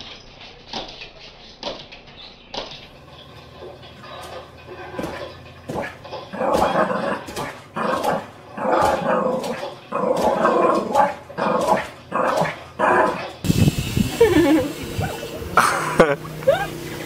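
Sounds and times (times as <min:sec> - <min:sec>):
dog barking and growling: 0:04.0 - 0:13.4, 0:14.6 - 0:16.8.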